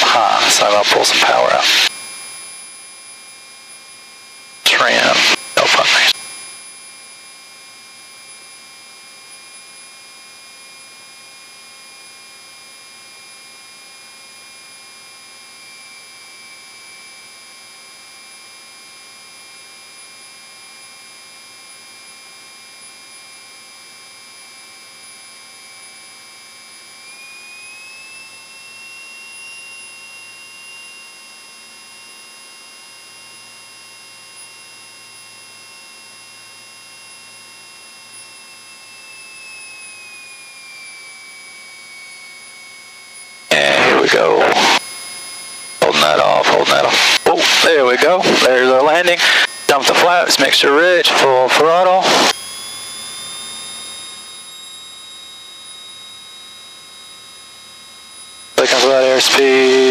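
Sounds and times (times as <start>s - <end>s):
airplane engine drone: 0.0s - 2.3s, 4.6s - 6.5s, 37.9s - 54.8s, 57.0s - 59.9s
high steady whines: 0.0s - 59.9s.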